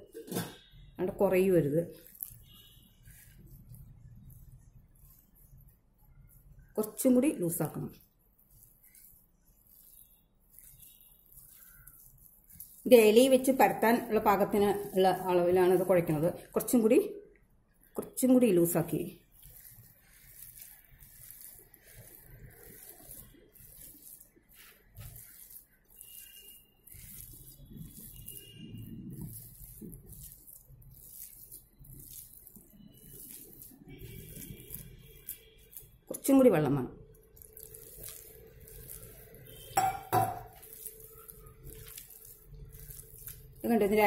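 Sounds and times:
hand kneading wet dough: 0.0 - 44.0
glass bowl clinking: 39.7 - 40.6.

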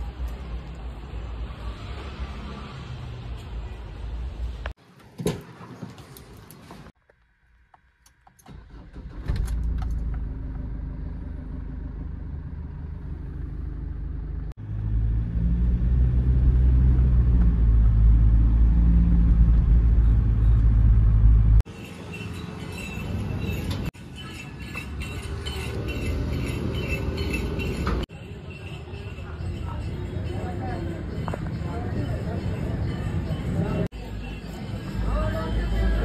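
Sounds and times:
outdoor background noise: 0.0 - 36.0
diesel engine from inside cabin: 8.4 - 21.7.

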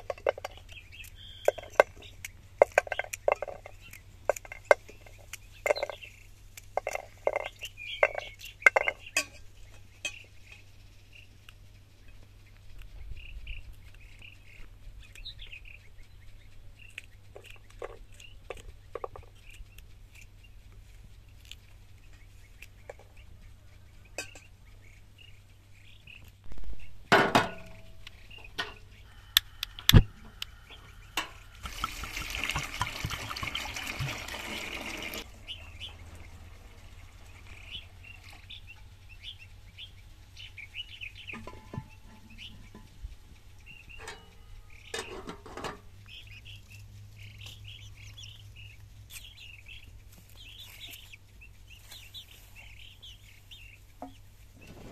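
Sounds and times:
small birds chirping: 0.0 - 54.9
young chickens clucking: 0.0 - 54.9
water pouring into pot: 31.6 - 35.2.

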